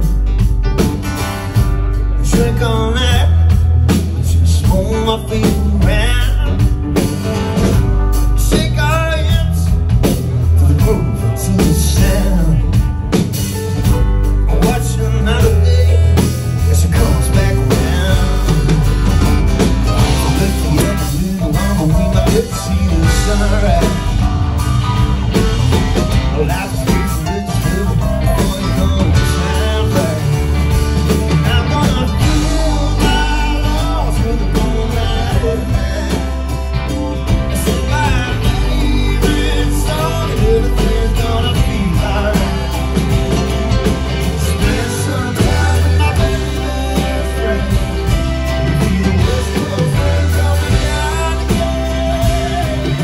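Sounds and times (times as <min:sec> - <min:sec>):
live rock band playing: 0:00.0 - 0:53.0
man singing into microphone: 0:02.2 - 0:06.8, 0:08.4 - 0:09.8, 0:10.4 - 0:12.8, 0:14.4 - 0:18.9, 0:19.9 - 0:24.3, 0:26.1 - 0:43.3, 0:44.3 - 0:53.0.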